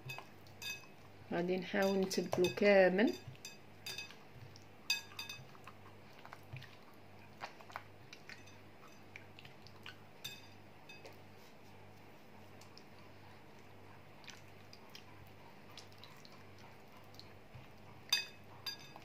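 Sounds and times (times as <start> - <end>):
hands squelching marinade: 11.0 - 18.4.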